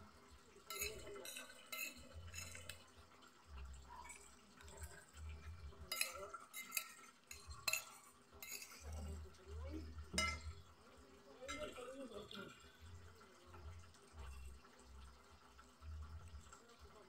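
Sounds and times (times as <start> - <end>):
cutlery clinking on glass plate: 0.6 - 2.8, 5.8 - 9.2, 10.1 - 10.6, 11.5 - 11.9.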